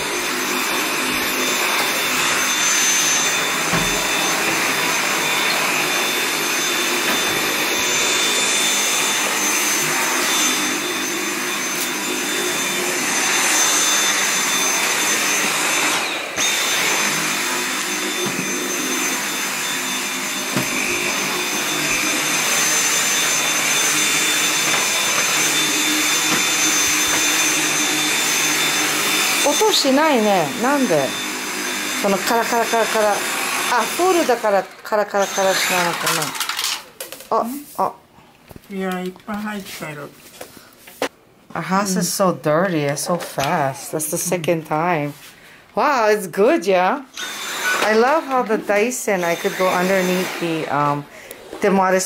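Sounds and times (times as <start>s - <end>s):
stick vacuum running: 0.0s - 36.8s.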